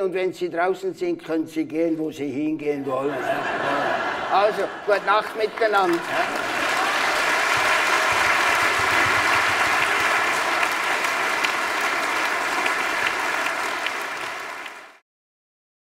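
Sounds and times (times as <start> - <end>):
audience applauding: 3.4 - 15.0.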